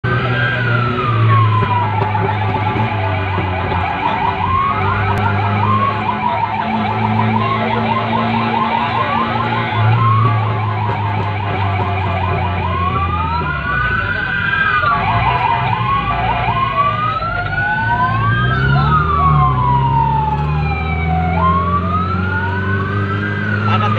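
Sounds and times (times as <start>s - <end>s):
electronic emergency siren: 0.1s - 23.9s.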